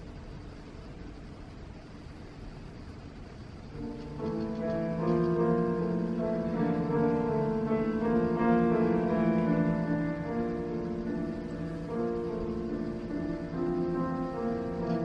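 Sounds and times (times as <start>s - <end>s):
piano accompaniment: 3.7s - 15.0s.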